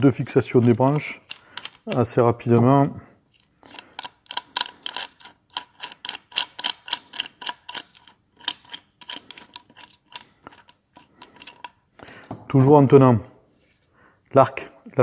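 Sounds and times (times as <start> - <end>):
bolts unscrewing small clicks: 0.0 - 2.7, 3.3 - 12.1.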